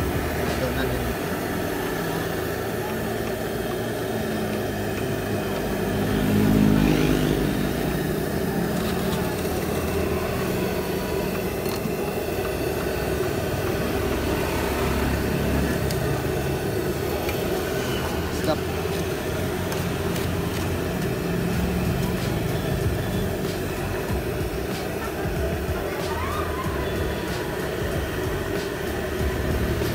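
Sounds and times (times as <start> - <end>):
street traffic rumble: 0.0 - 29.9
vehicle engine passing: 3.9 - 24.6.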